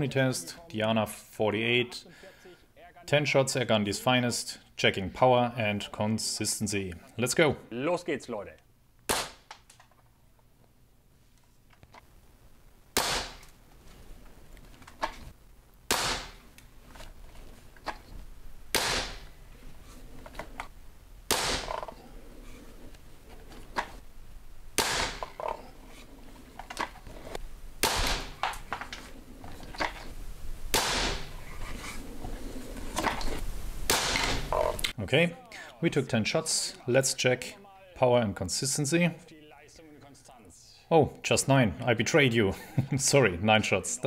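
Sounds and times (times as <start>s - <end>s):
air rifle shots: 9.1s - 9.6s, 12.9s - 13.5s, 15.9s - 16.5s, 18.7s - 19.4s, 21.3s - 22.0s, 24.7s - 25.6s, 27.8s - 28.8s, 30.7s - 31.4s, 33.9s - 34.7s.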